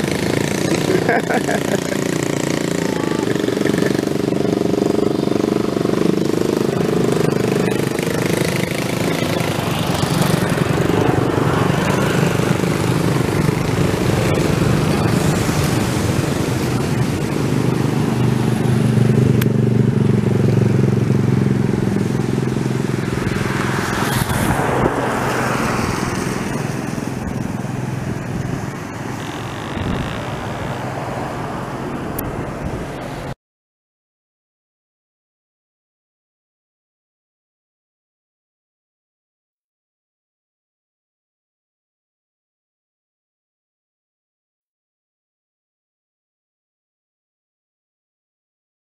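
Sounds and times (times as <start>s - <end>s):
boat motor drone: 0.0s - 33.4s
rush of noise: 0.0s - 33.4s.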